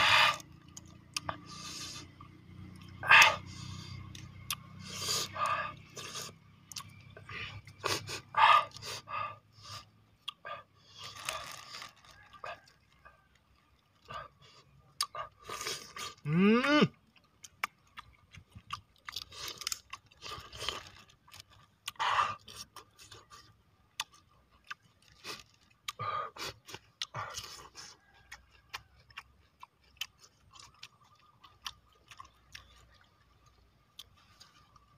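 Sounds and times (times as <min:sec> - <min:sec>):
wet chewing and crunching: 0:00.0 - 0:34.9.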